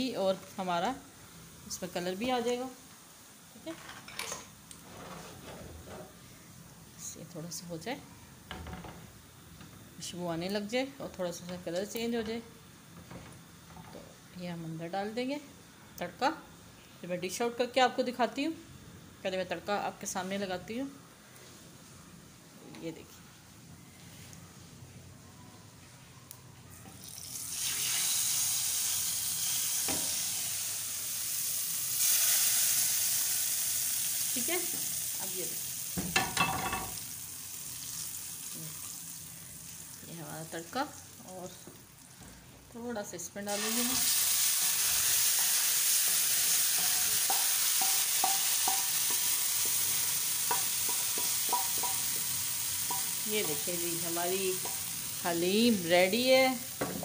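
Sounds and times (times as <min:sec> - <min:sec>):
hot oil sizzling: 0:27.0 - 0:42.1, 0:43.5 - 0:57.0.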